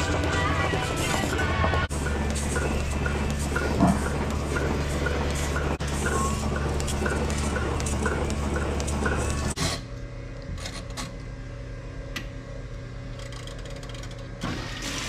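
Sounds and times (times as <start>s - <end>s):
milking machine vacuum hum: 0.0s - 15.0s.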